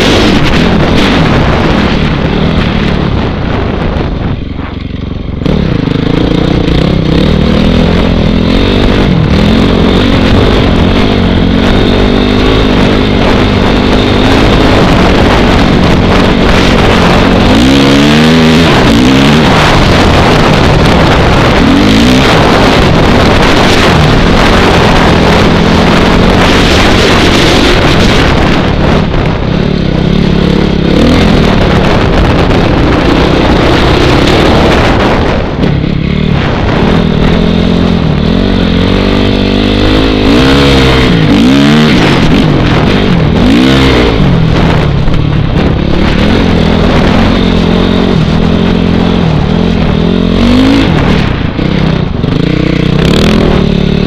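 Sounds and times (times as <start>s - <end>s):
dirt bike engine running: 0.0s - 54.0s
wind buffeting microphone: 0.0s - 54.0s.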